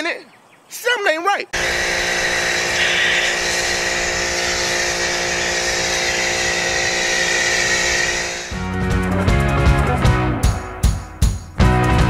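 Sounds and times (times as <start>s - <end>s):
foam cannon spraying hiss: 1.6s - 8.6s
pressure washer motor hum: 1.6s - 8.8s
rock music: 8.5s - 12.0s.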